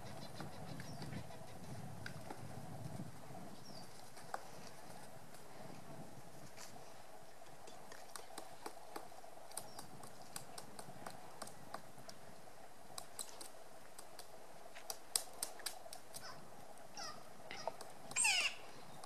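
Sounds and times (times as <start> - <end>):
woodpecker tapping on bark: 0.0 - 2.5, 7.6 - 12.3, 12.9 - 16.4, 17.0 - 19.0.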